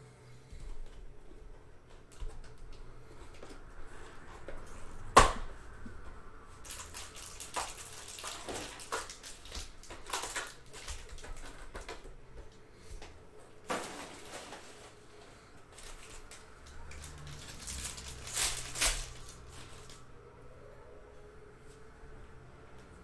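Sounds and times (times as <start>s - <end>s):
wrapper crinkling and tearing: 6.6s - 12.0s, 13.7s - 15.0s, 15.7s - 20.0s.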